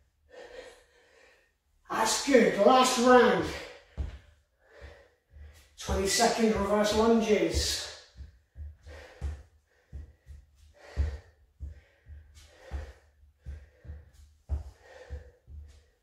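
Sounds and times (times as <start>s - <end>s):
man breathing hard: 0.2s - 1.6s, 3.5s - 16.0s
footsteps thudding on wooden floor: 3.9s - 4.3s, 5.4s - 15.7s.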